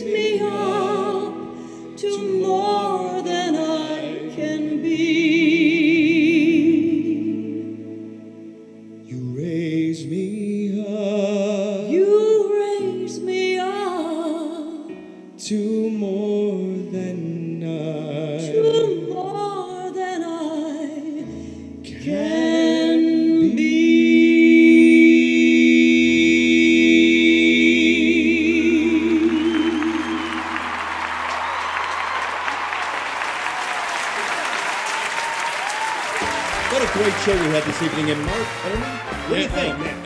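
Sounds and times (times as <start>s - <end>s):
woman singing a slow ballad: 0.0s - 7.9s, 9.4s - 30.4s
applause: 29.2s - 40.0s
instrumental backing: 36.0s - 40.0s.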